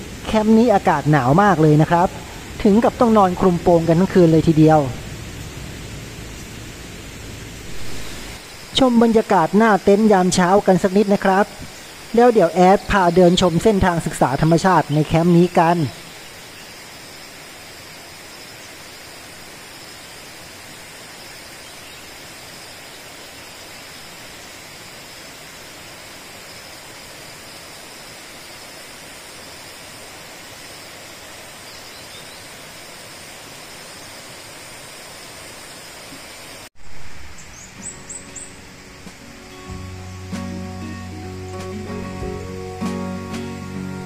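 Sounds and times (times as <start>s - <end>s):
forest stream rushing: 0.0s - 44.0s.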